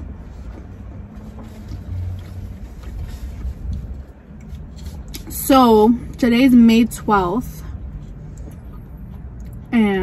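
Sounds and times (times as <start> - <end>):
steady low rumble: 0.0 - 10.0
mouth chewing: 8.0 - 9.8.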